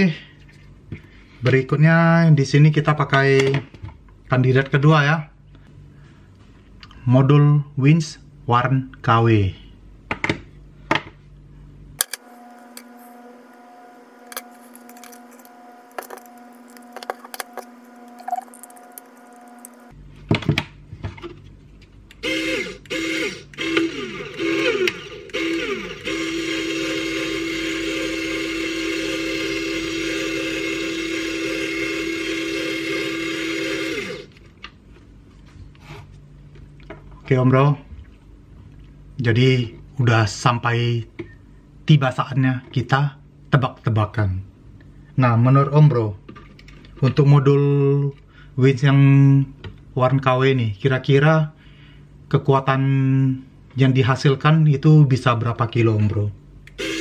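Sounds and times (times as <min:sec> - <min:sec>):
electric winch motor whining: 0:12.0 - 0:20.0, 0:22.2 - 0:34.4, 0:56.7 - 0:57.0.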